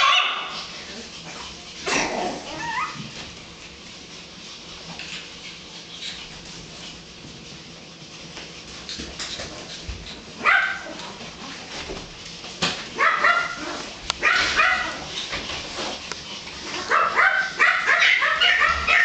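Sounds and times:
puppies yipping and barking: 0.0s - 3.2s, 12.9s - 19.0s.

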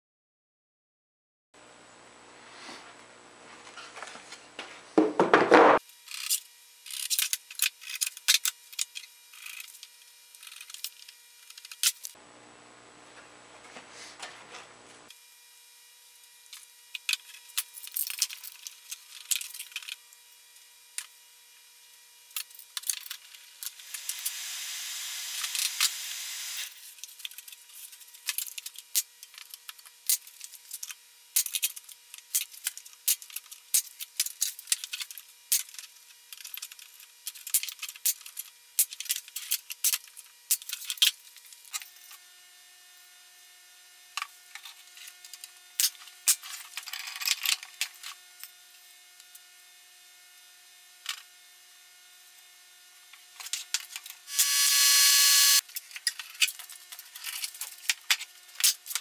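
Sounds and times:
wooden boards being handled: 3.7s - 5.8s
steady hiss: 23.7s - 26.8s
nail gun: 54.3s - 55.6s.

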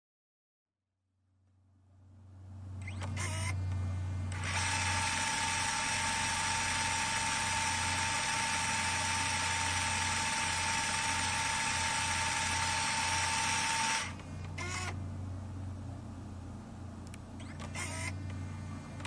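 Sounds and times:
tape rewinding whirr: 2.8s - 3.7s, 4.3s - 15.0s, 17.4s - 19.0s.

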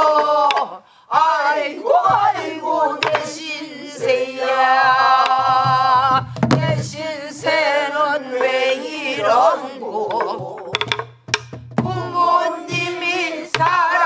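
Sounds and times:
person singing long held notes: 0.0s - 10.8s
barrel drum struck: 10.7s - 12.0s.

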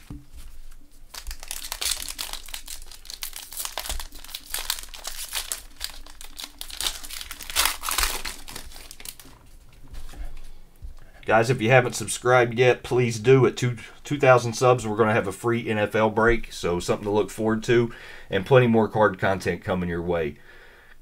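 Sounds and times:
foil wrapper crinkling and tearing: 0.5s - 9.9s.

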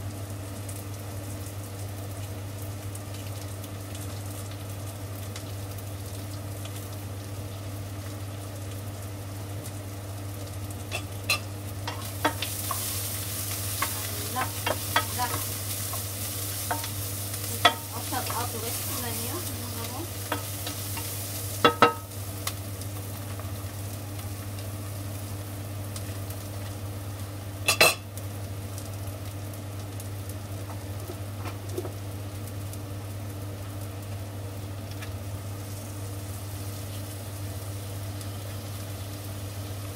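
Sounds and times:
onions sizzling in a frying pan: 0.0s - 39.9s
knocks on pan: 21.6s - 22.1s.

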